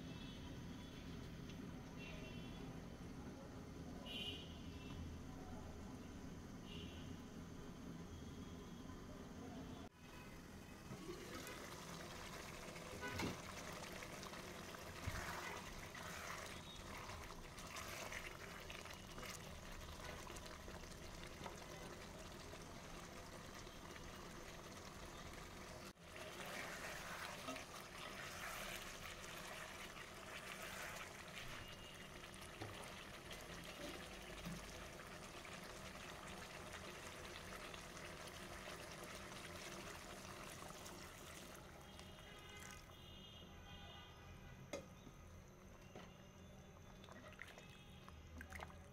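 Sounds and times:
curry bubbling in a pot: 10.7 - 43.0, 46.8 - 48.9.

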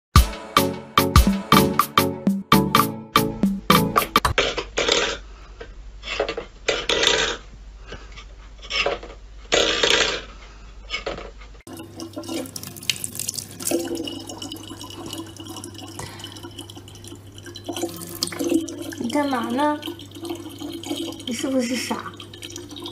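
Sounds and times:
metal bowl scraping on wood floor: 8.1 - 11.1
tap water running into bottle: 11.7 - 22.9.

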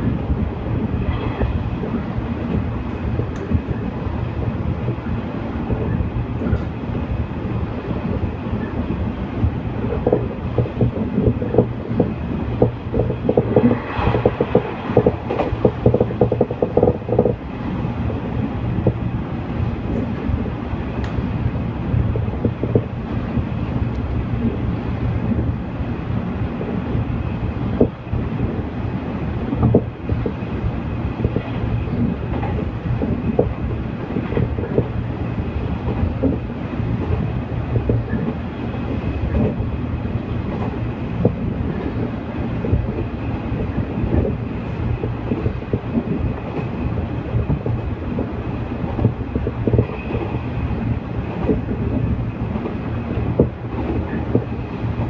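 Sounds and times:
train wheels rumbling on rails: 0.0 - 55.0
wheels clacking over rail joints: 9.8 - 17.4.

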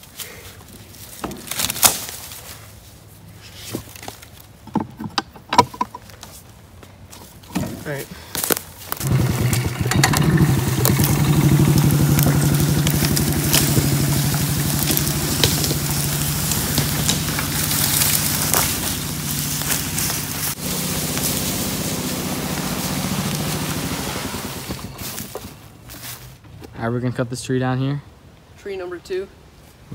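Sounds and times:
tree trunk dragging over brush: 0.0 - 4.7, 5.9 - 26.4
golf cart engine running: 9.0 - 25.7.

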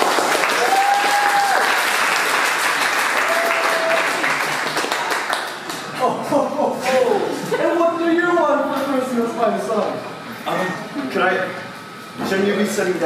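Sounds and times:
audience applauding: 0.0 - 5.9
crowd cheering: 0.0 - 5.9.

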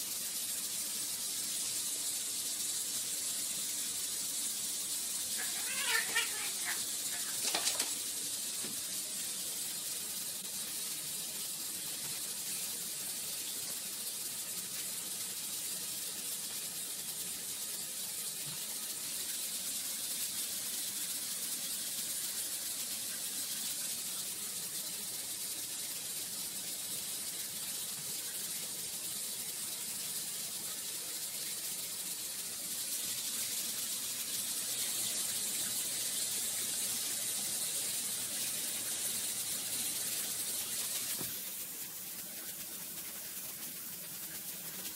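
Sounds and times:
steady hiss: 0.0 - 44.9.

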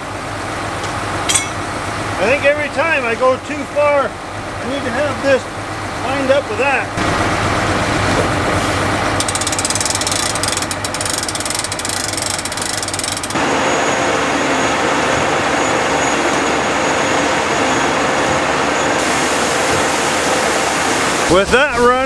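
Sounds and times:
conveyor mechanical rush with whine: 0.0 - 22.0
low engine hum: 0.0 - 22.0
gate crank ratcheting: 9.2 - 13.4.

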